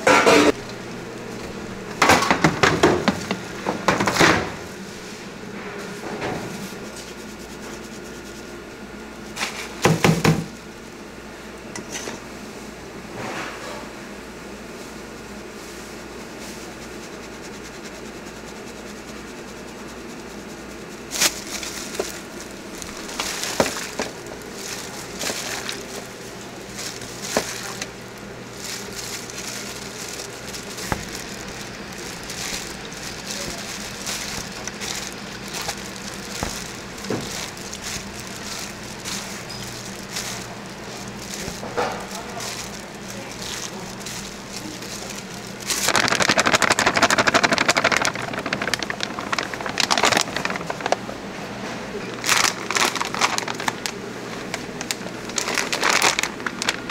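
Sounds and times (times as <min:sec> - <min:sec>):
kitchen hum: 0:00.0 - 0:56.9
squid tossed in flour in bowl: 0:15.7 - 0:51.1.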